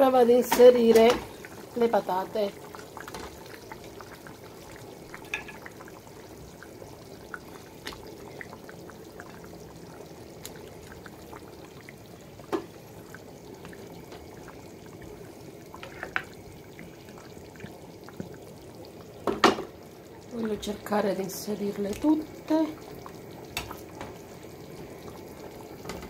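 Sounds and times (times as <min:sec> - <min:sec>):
sauce bubbling in a pot: 0:00.0 - 0:26.0.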